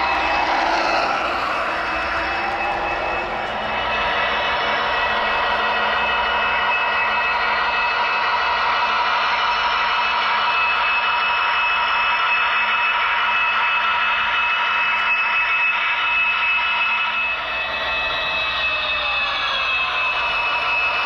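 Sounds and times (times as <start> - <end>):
downward sliding tones: 0.0 - 5.7
high electric whine: 0.0 - 8.4
model train wheels whirring: 0.0 - 11.4.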